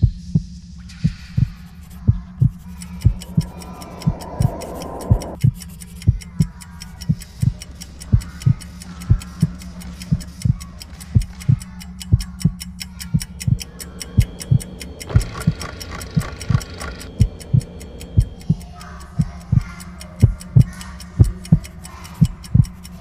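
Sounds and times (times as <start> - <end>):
buzzing noise: 0.0 - 6.4
low heartbeat-like thumps: 0.0 - 9.5, 11.2 - 21.7
low hum: 0.0 - 23.0
fast clock ticking: 0.3 - 23.0.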